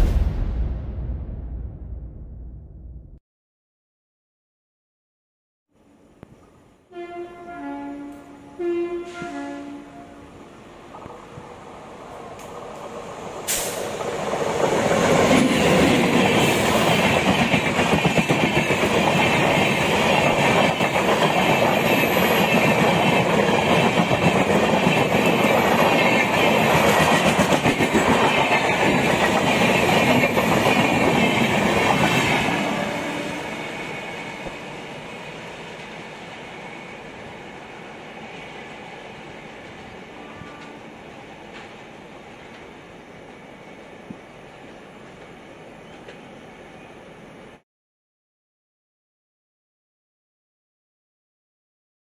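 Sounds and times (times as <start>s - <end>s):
train passing at speed: 6.4s - 47.6s.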